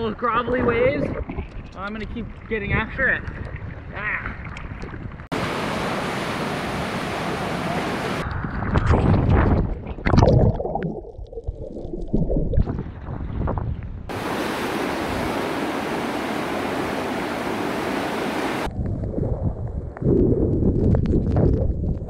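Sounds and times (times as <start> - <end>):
wind: 0.0 - 10.2, 12.5 - 22.0
surf rushing: 5.3 - 8.2, 14.1 - 18.7
seawater splashing: 14.1 - 18.7.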